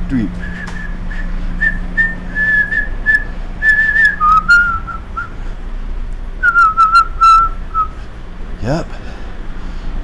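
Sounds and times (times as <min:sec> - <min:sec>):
train carriage hum: 0:00.0 - 0:10.0
man whistling a tune: 0:00.4 - 0:05.4, 0:06.4 - 0:08.0.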